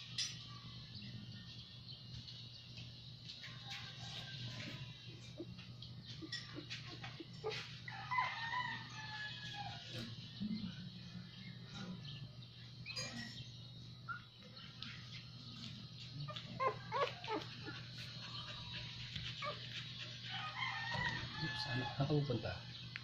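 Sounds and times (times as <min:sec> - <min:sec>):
puppies whimpering: 0:04.1 - 0:08.4, 0:14.0 - 0:21.7.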